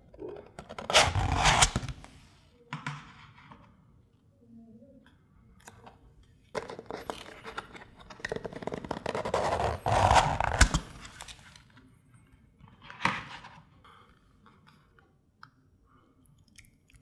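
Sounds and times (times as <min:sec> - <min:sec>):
plastic lids crackling and scraping: 0:06.6 - 0:11.4.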